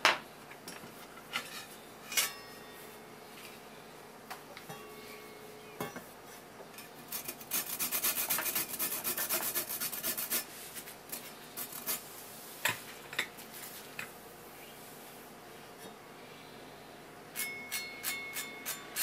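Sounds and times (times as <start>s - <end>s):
citrus scraping on metal grater: 7.1s - 10.5s, 11.6s - 12.0s.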